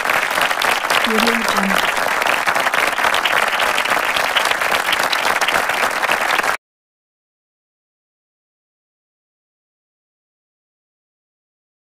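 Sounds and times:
crowd applause: 0:00.0 - 0:06.6.

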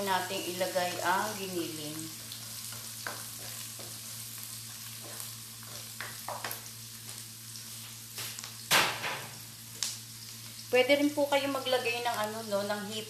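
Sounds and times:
garlic and onion sizzling in oil: 0:00.0 - 0:13.0
spatula scraping and tapping pan: 0:02.3 - 0:04.1, 0:04.9 - 0:06.7.

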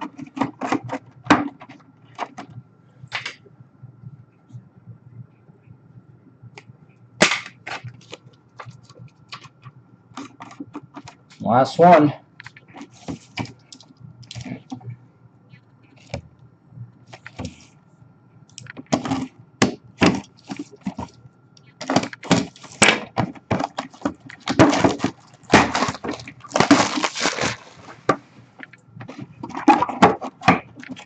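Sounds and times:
cardboard scrapes and rips: 0:24.5 - 0:28.2.

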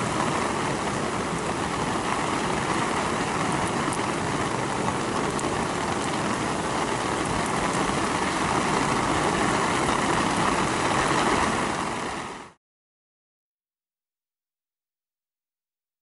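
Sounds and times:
heavy rain on ground: 0:00.0 - 0:12.6.

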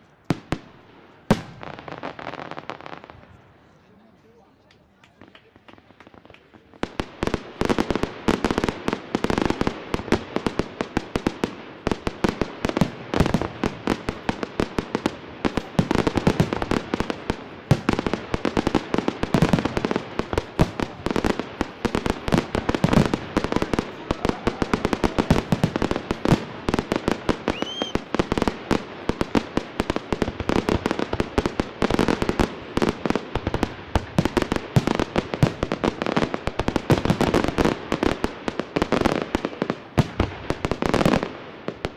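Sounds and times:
fireworks bangs: 0:00.2 - 0:03.5, 0:05.1 - 0:41.9
firework rising whistle: 0:27.4 - 0:28.1.

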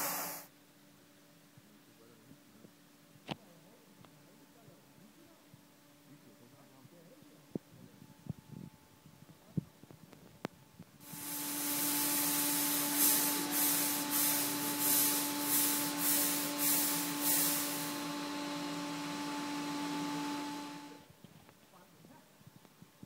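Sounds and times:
machine blowing air: 0:00.0 - 0:00.5, 0:11.0 - 0:21.0.

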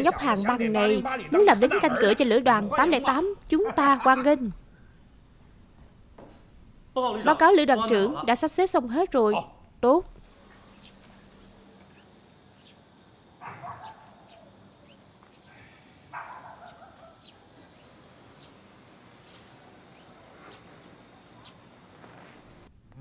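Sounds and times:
bird chirps: 0:11.9 - 0:12.9, 0:16.3 - 0:18.6, 0:19.2 - 0:21.7
animal calls: 0:13.4 - 0:18.6.

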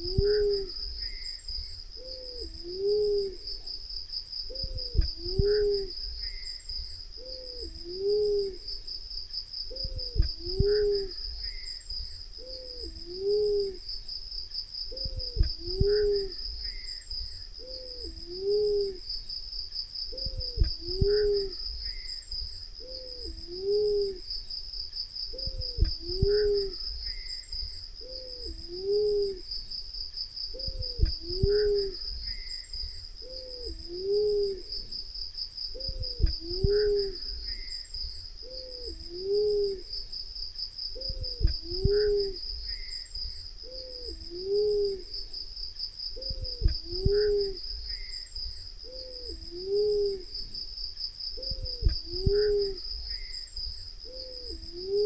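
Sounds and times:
dove cooing: 0:00.0 - 0:01.3, 0:02.0 - 0:03.7, 0:04.5 - 0:06.5, 0:07.2 - 0:08.8, 0:09.7 - 0:11.7, 0:12.4 - 0:13.9, 0:14.9 - 0:16.9, 0:17.6 - 0:19.1, 0:20.1 - 0:22.1, 0:22.8 - 0:24.3, 0:25.3 - 0:27.2, 0:28.0 - 0:29.5, 0:30.5 - 0:32.5, 0:33.2 - 0:34.9, 0:35.7 - 0:37.7, 0:38.4 - 0:40.1, 0:40.9 - 0:42.9, 0:43.6 - 0:45.4, 0:46.2 - 0:48.1, 0:48.8 - 0:50.5, 0:51.4 - 0:53.3, 0:54.0 - 0:55.0.

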